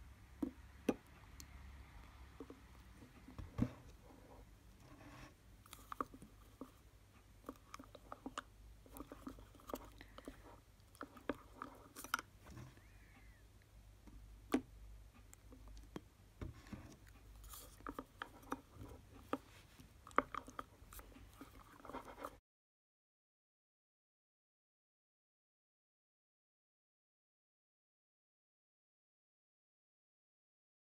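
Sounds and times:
stick stirring wet slime: 0:00.0 - 0:22.4.

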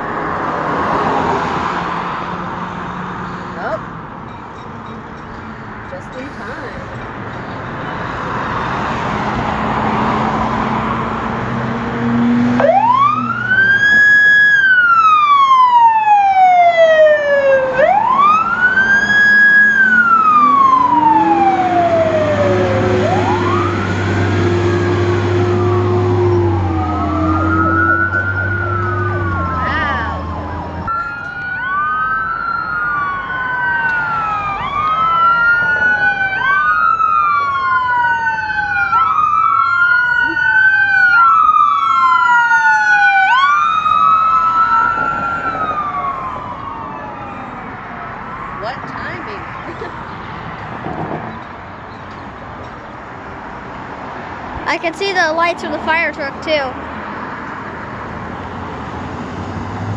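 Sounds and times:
ambulance siren: 0:07.7 - 0:51.8
fire engine siren wailing: 0:07.9 - 0:49.8.

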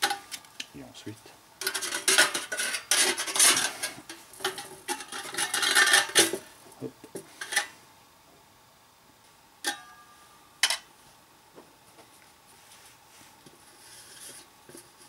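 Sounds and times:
tin can scraping on metal: 0:01.6 - 0:06.4.

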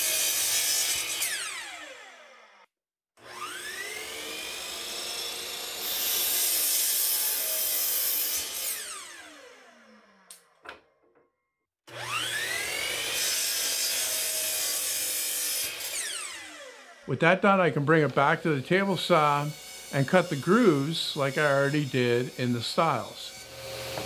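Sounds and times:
miter saw cutting wood: 0:00.0 - 0:10.5, 0:11.9 - 0:24.0.

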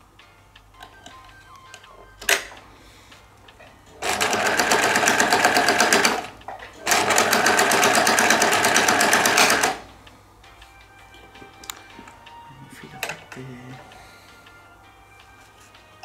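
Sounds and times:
sewing machine stitching: 0:03.9 - 0:09.8.

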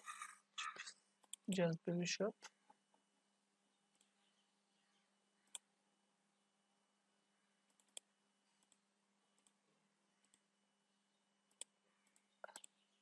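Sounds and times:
faint low hum: 0:00.0 - 0:13.0
computer mouse clicks: 0:01.2 - 0:01.6, 0:07.7 - 0:08.8, 0:09.4 - 0:09.6, 0:10.2 - 0:10.5, 0:11.5 - 0:12.8.

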